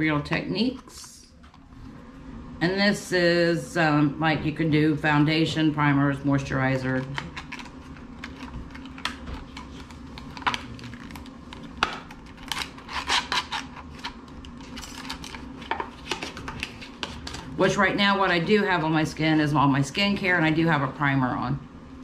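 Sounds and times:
packaging crinkling and clicking: 0:07.0 - 0:17.5
plastic packaging snapping: 0:07.1 - 0:17.4.

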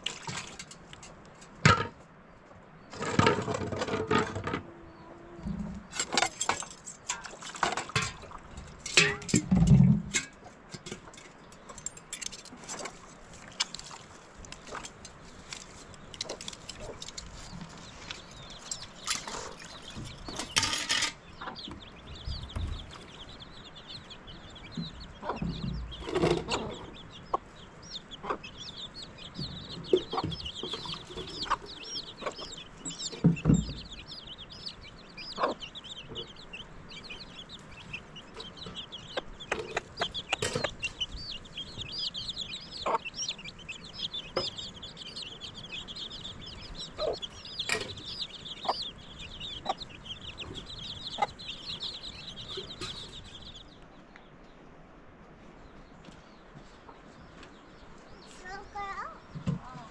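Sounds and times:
chicks peeping: 0:02.3 - 0:59.9
hen clucking: 0:02.9 - 0:54.2
metal dishes clinking: 0:05.9 - 0:12.9, 0:18.4 - 0:21.2.

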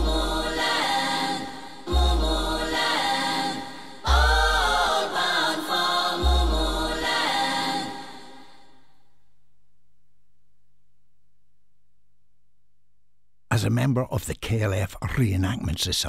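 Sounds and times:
choir chanting: 0:00.0 - 0:08.8.

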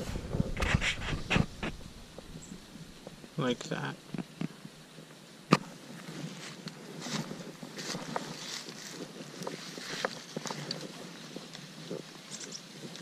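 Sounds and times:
wind on microphone: 0:00.0 - 0:03.3.

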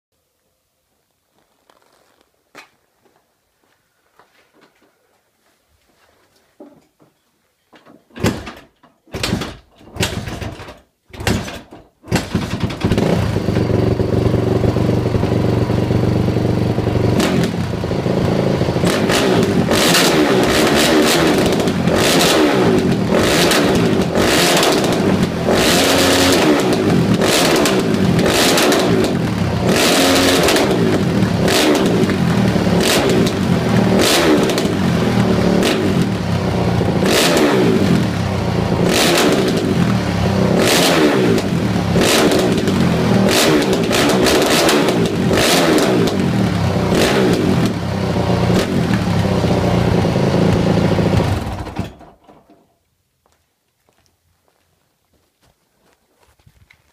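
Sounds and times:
dirt bike engine idling and revving: 0:09.2 - 0:52.0.

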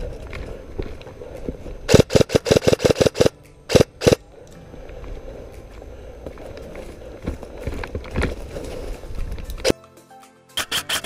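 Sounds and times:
airsoft rifle shots: 0:01.9 - 0:04.2.

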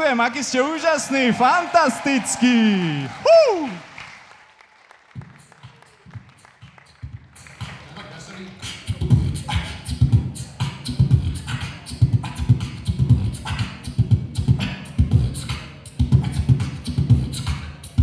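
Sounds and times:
person beatboxing into a microphone: 0:05.3 - 0:18.0.

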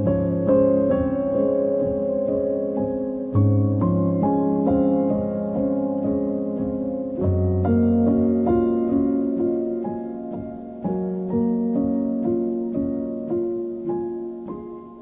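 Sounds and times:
gentle piano piece: 0:00.0 - 0:15.0.

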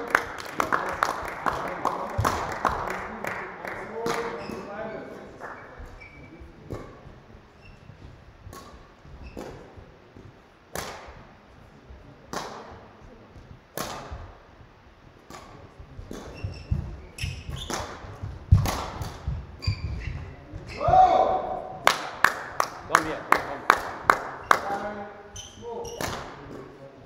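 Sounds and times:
court shoes squeaking: 0:04.1 - 0:11.2, 0:15.2 - 0:21.1, 0:24.3 - 0:26.8
racket hitting shuttlecock: 0:06.6 - 0:07.0, 0:08.5 - 0:09.8, 0:10.7 - 0:11.3, 0:12.3 - 0:12.8, 0:13.7 - 0:14.4, 0:15.2 - 0:22.5, 0:25.8 - 0:26.7
heavy footfalls: 0:15.8 - 0:21.6.

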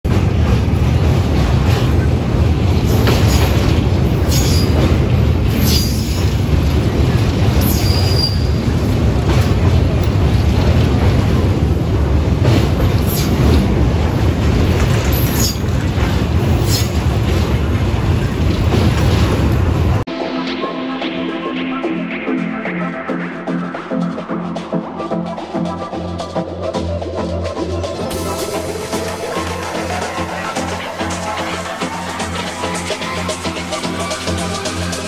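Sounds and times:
train wheels rumbling on rails: 0:00.0 - 0:20.1, 0:25.6 - 0:35.0
high wheel squeals: 0:07.6 - 0:08.6.

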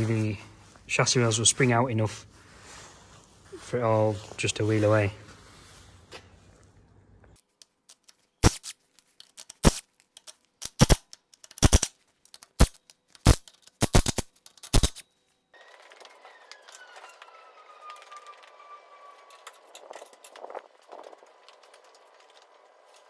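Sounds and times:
faint whine falling in pitch: 0:15.6 - 0:21.1.

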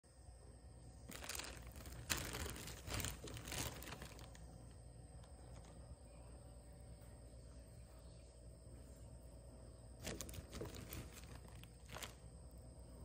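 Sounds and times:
plastic bag rustling: 0:01.0 - 0:05.9, 0:10.0 - 0:12.4.

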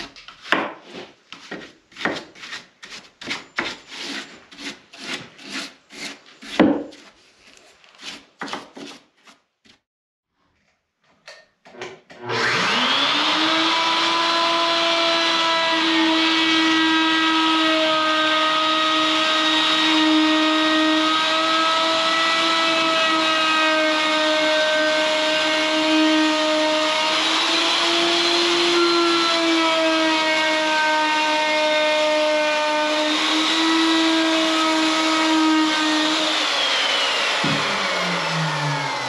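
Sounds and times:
router high whine: 0:12.2 - 0:17.1, 0:21.2 - 0:39.0.

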